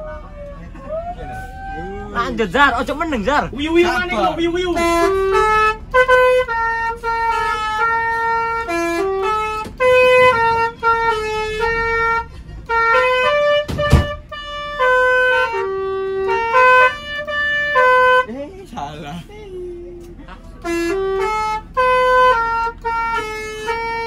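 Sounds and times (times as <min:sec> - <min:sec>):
multi-tone bus horn tune: 0:00.0 - 0:19.3, 0:20.0 - 0:24.0
sharp knock: 0:13.6 - 0:14.2.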